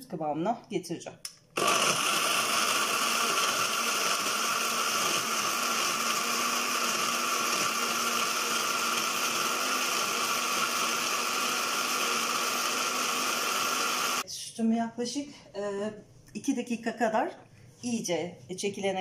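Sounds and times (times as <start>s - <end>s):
blender motor whining: 1.6s - 14.2s.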